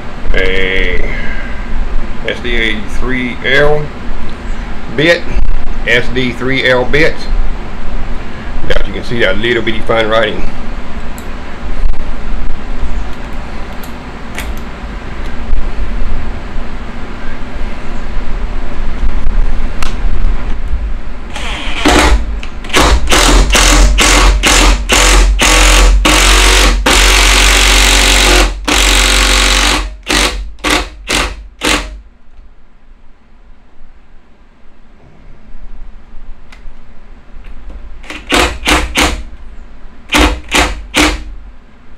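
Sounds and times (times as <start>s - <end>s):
cordless drill drilling into wood: 21.3s - 31.9s, 38.1s - 39.2s, 40.1s - 41.2s.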